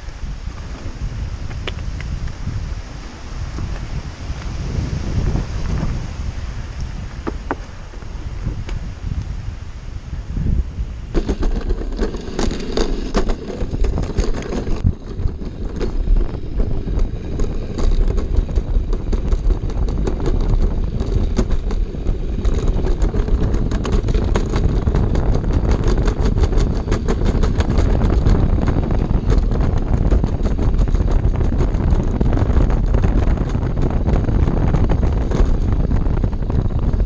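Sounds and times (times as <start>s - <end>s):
sled rumbling down metal trough: 10.4s - 37.0s.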